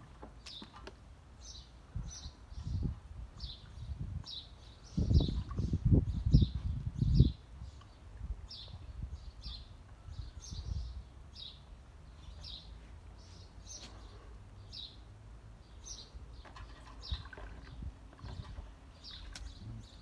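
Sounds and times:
bird chirping: 0:00.4 - 0:20.0
dog splashing water: 0:16.4 - 0:19.6.

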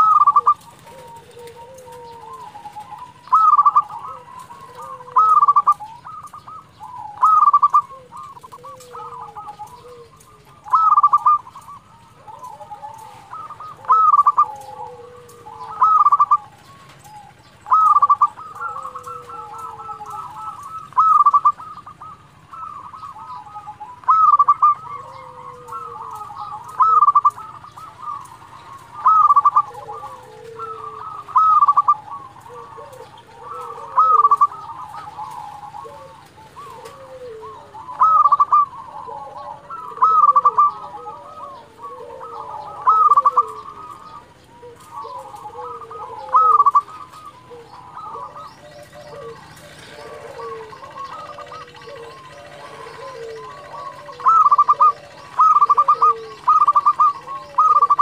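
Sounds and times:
dove cooing song: 0:00.0 - 0:58.0.

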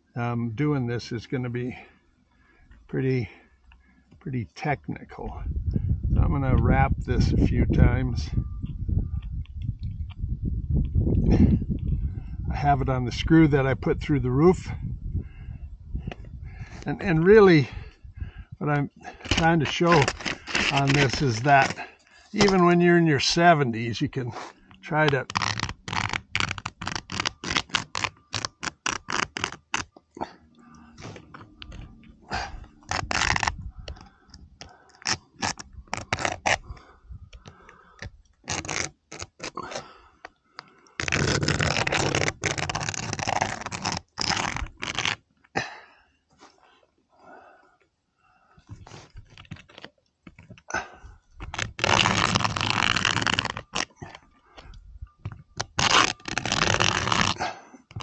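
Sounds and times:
nail scratching roof surface: 0:19.1 - 0:22.7, 0:24.4 - 0:30.3, 0:31.0 - 0:39.9, 0:41.0 - 0:45.2, 0:51.4 - 0:54.2, 0:55.2 - 0:58.0.

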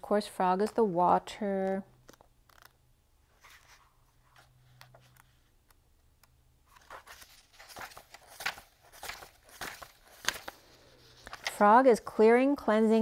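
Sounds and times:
pages rustling: 0:02.0 - 0:05.5, 0:06.6 - 0:11.8.

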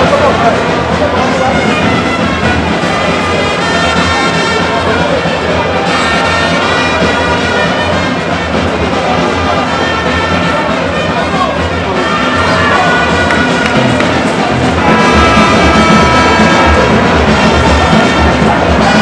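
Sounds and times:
loud brass music: 0:00.0 - 0:19.0.

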